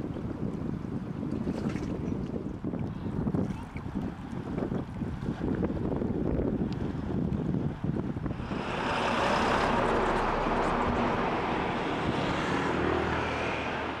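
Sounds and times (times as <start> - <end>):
road traffic rush: 7.7 - 14.0.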